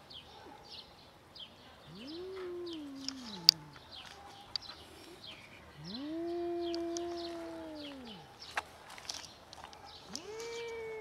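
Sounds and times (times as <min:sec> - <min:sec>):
small birds chirping: 0:00.0 - 0:11.0
cat warning yowl: 0:01.9 - 0:03.8, 0:05.8 - 0:08.4, 0:10.1 - 0:11.0.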